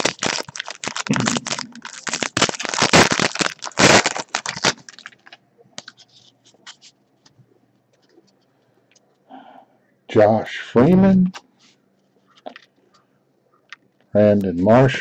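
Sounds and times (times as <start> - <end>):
foil pack tearing and crinkling: 0.0 - 5.4.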